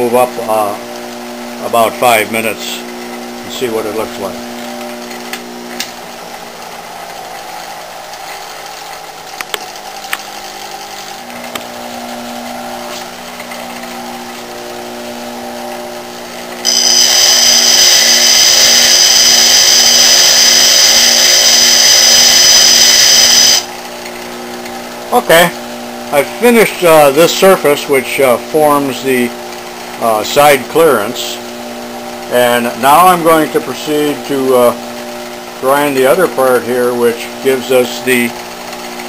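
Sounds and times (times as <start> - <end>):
bench grinder motor hum: 0.0 - 39.0
high-pitched metal grinding: 16.6 - 23.7.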